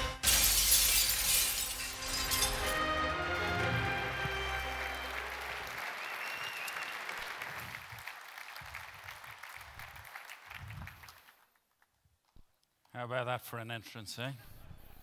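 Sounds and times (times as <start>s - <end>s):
audience applauding: 3.0s - 11.8s.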